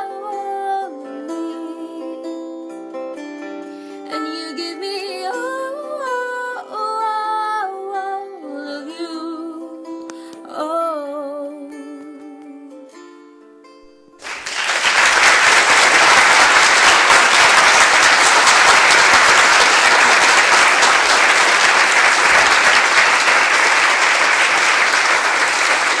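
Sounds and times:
audience applause: 14.2 - 26.0.

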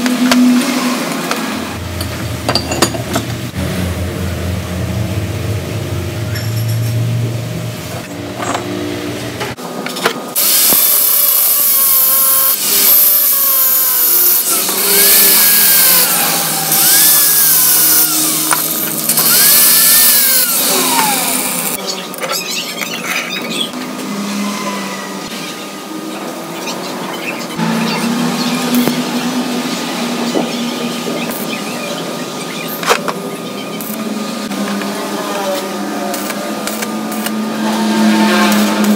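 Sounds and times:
angle grinder cutting steel: 10.4 - 21.8, 33.8 - 38.9.

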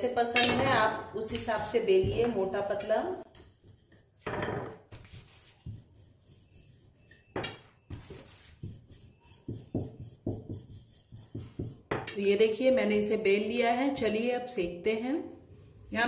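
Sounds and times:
rolling pin rubbing on dough: 1.2 - 12.2.

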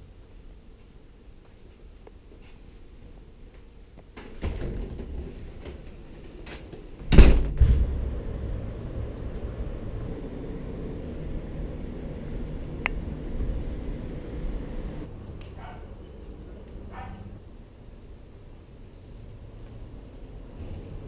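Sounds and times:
low background noise: 0.0 - 21.0
door banging shut: 7.0 - 8.5.

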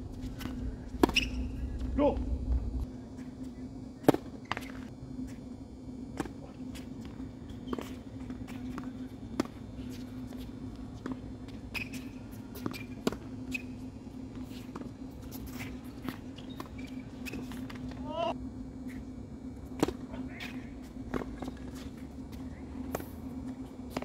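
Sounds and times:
low hum: 0.0 - 24.0
shoe squeaks: 1.0 - 1.7, 7.5 - 8.1, 11.6 - 13.8, 15.5 - 17.6.

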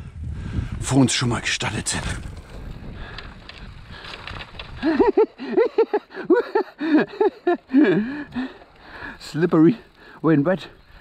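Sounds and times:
bike rolling over wet trail: 1.6 - 5.9, 6.8 - 11.0.

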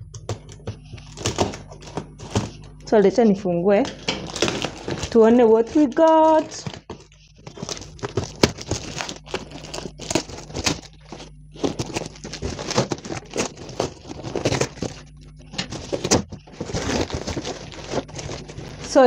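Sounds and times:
scissors cutting packing tape: 0.2 - 2.6, 3.9 - 15.0, 15.6 - 19.0
plastic film crinkling and ripping: 0.7 - 2.7, 3.8 - 19.0.

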